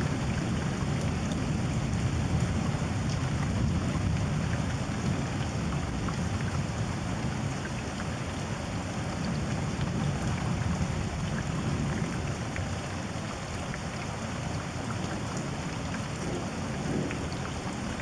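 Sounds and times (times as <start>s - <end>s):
steady rain: 0.0s - 18.0s
raindrops ticking: 13.7s - 18.0s
low thunder rumble: 16.2s - 18.0s.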